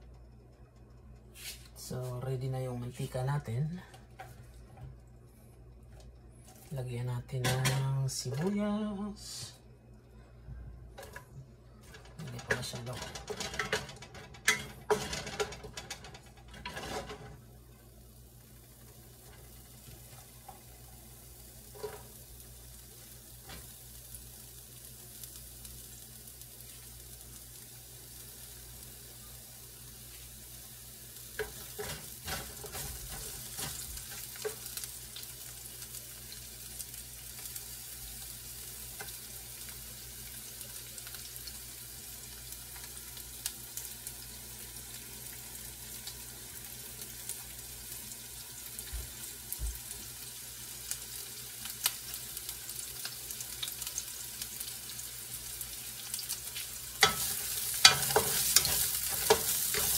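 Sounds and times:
onions sizzling in hot oil: 11.8s - 59.9s
wooden spatula scraping a pan: 57.0s - 59.9s.

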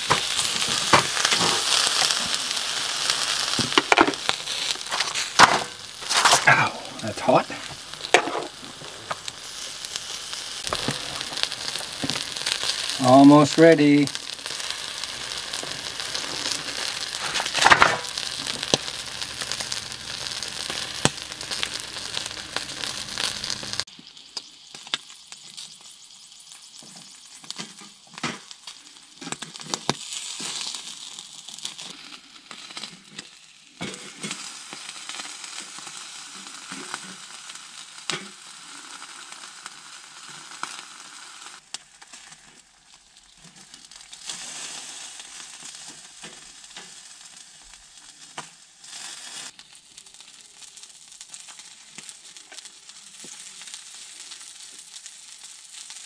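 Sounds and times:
chicken sizzling on a grill: 0.0s - 56.0s
tongs and knife on metal grill: 0.1s - 2.2s, 3.5s - 9.4s.

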